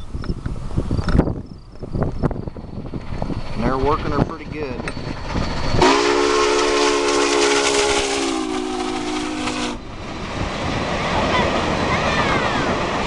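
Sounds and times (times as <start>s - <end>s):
steam locomotive hiss and rumble: 0.0s - 13.0s
steam whistle blast: 5.8s - 9.9s.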